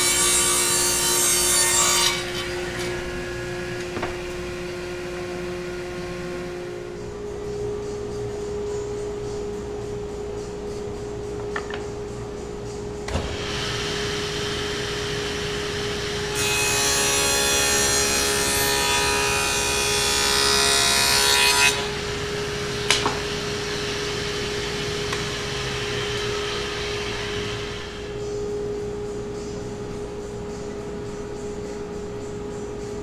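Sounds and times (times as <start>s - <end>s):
table saw humming: 13.1s - 28.3s
saw cutting wooden board: 13.3s - 22.2s.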